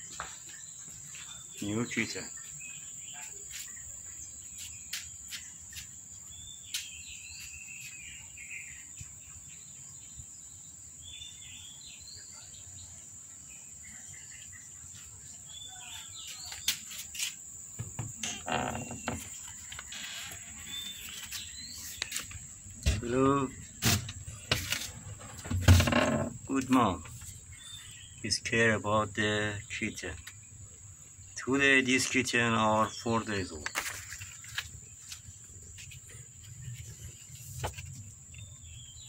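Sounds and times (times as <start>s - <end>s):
small birds chirping: 0.0s - 39.0s
knocks and rustling: 16.6s - 27.4s, 33.7s - 38.2s
insect drone: 16.8s - 28.4s.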